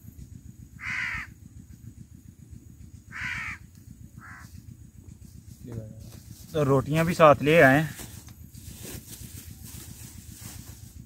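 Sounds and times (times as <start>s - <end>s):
low rumble: 0.0s - 11.0s
crow cawing: 0.8s - 1.4s, 3.1s - 4.6s.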